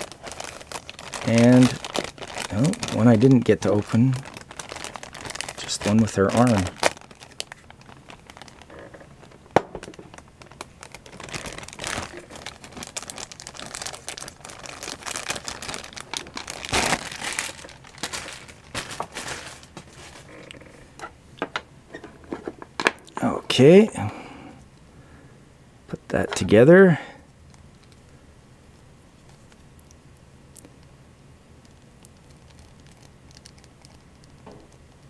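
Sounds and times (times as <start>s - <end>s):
plastic bag crinkling: 0.0s - 20.7s, 32.2s - 34.8s.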